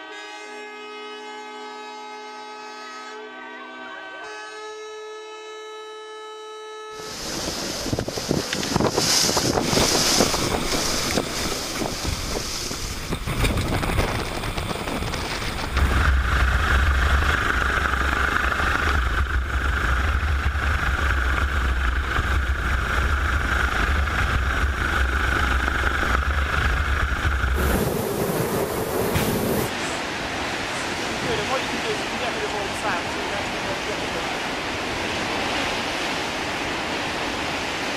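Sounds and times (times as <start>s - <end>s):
higher steady hum: 7.0s - 37.4s
big waves breaking: 7.0s - 37.9s
storm wind: 7.0s - 37.9s
wind buffeting microphone: 7.0s - 37.9s
deep rumble: 7.2s - 31.4s.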